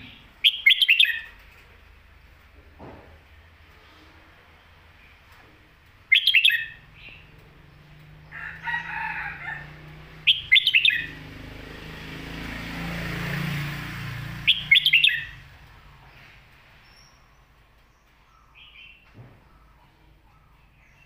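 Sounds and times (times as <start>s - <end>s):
bird singing rapid phrases: 0.0s - 1.6s, 5.9s - 8.9s, 10.1s - 12.0s, 14.2s - 21.0s.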